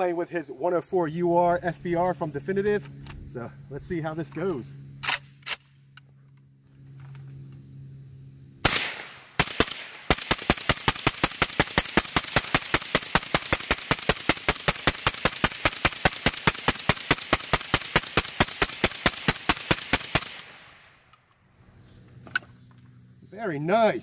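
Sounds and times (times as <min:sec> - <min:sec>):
suppressed rifle shots: 0:08.6 - 0:20.8.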